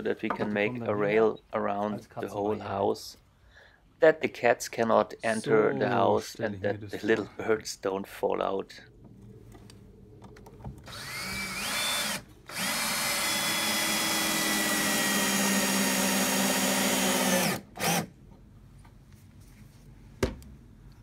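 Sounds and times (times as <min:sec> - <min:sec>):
cordless drill driving screws: 0:10.9 - 0:18.1.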